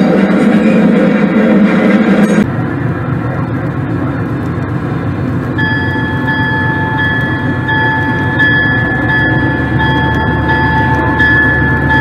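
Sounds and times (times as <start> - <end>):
high steady tone: 5.5 - 12.0.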